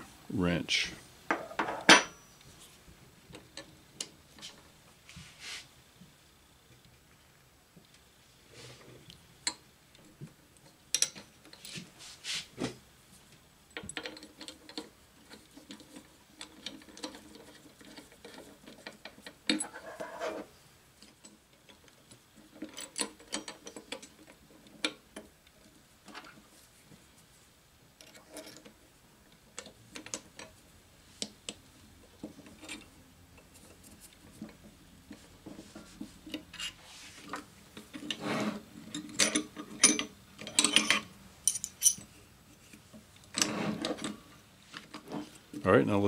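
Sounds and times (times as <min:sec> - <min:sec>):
metallic clicks of wrench and fittings: 0:38.9 - 0:42.1.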